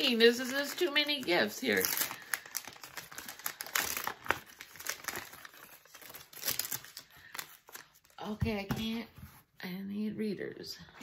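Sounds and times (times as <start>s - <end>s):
paper crinkling and rustling: 0.0s - 8.6s.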